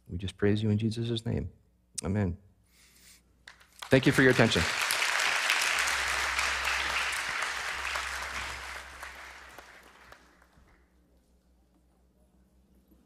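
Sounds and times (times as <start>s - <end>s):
audience applauding: 3.5s - 10.8s.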